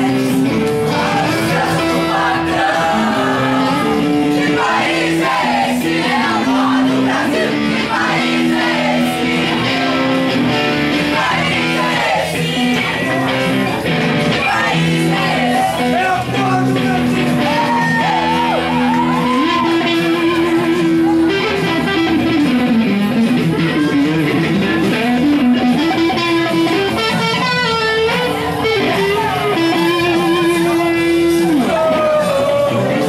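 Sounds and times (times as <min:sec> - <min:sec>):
young voices singing along: 0:00.0 - 0:20.0
electric guitar playing: 0:00.0 - 0:33.0.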